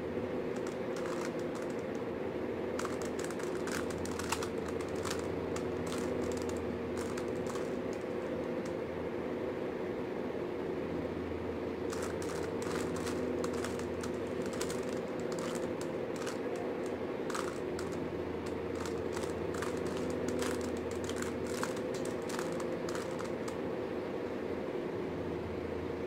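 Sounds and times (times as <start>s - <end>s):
steady low hum: 0.0s - 26.0s
plastic puzzle cube clicking: 0.6s - 2.0s, 2.8s - 8.6s, 11.9s - 23.6s.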